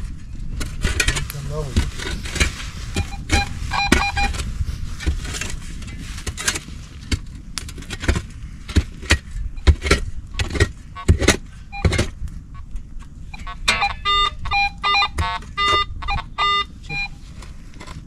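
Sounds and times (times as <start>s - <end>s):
stones and gravel being raked: 0.9s - 8.2s
metal detector beeps: 2.9s - 4.4s, 11.0s - 12.1s, 13.3s - 17.2s.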